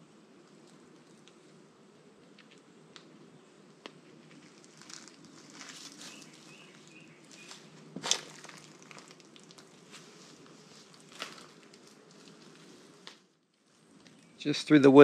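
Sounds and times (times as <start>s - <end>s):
footsteps crunching on dirt: 4.5s - 12.8s.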